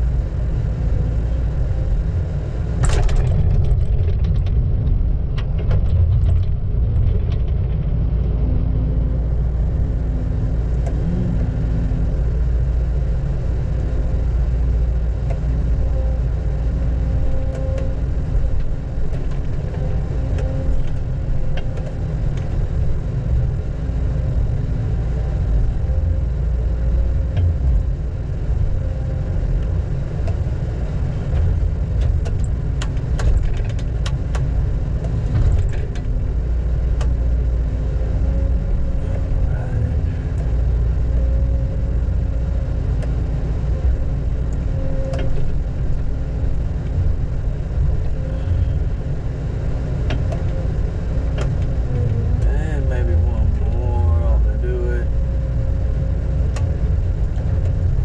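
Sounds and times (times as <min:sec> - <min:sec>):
diesel engine droning: 0:00.0 - 0:58.0.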